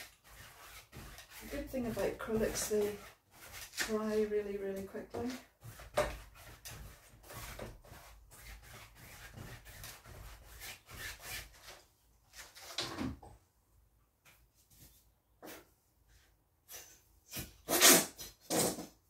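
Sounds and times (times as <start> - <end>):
painting knife scraping canvas: 0.0 - 12.8.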